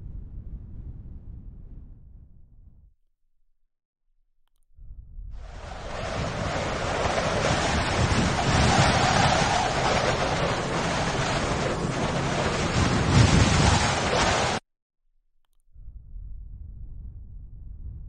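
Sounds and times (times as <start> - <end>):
rushing noise with surges: 5.4 - 14.6.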